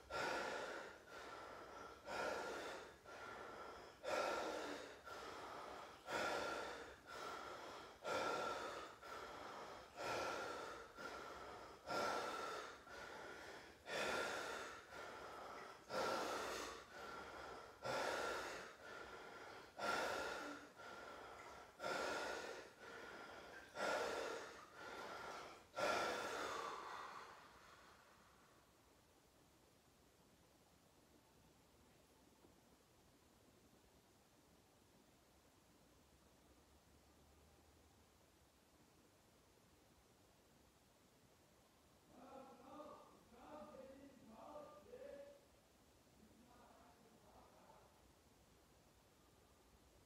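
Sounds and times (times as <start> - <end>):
person breathing deeply: 0.0 - 28.6.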